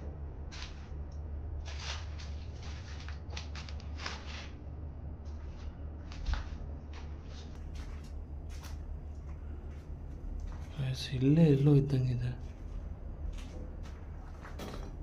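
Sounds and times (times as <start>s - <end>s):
steady low rumble: 0.0s - 15.0s
footsteps scuffing and shuffling: 1.6s - 4.6s, 5.2s - 10.8s, 12.4s - 15.0s.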